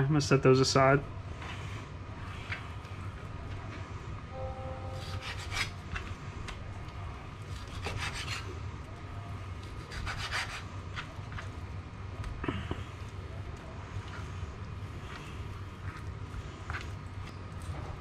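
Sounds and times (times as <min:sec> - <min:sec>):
steady low hum: 0:00.0 - 0:18.0
knife sawing through meat: 0:05.0 - 0:05.8, 0:07.6 - 0:08.5, 0:09.8 - 0:10.7
knife scraping cutting board: 0:05.0 - 0:06.0.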